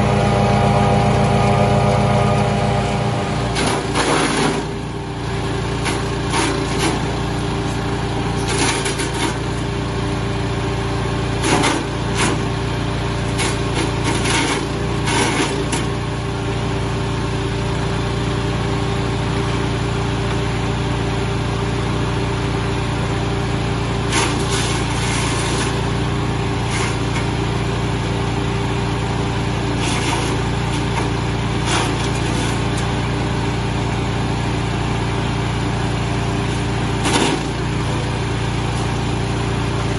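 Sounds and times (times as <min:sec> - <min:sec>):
chipper shredder running: 0:00.0 - 0:39.9
sharp cracks and knocks: 0:05.8 - 0:07.1, 0:08.4 - 0:09.4, 0:11.4 - 0:12.4, 0:13.4 - 0:15.9, 0:29.8 - 0:32.9, 0:37.0 - 0:37.6.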